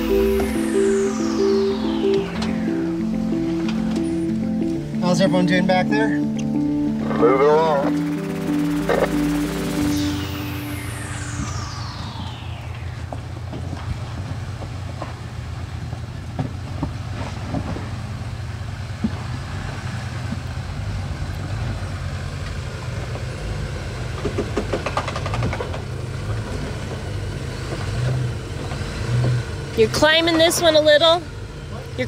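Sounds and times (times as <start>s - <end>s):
off-road vehicle engine running: 13.1s - 32.0s.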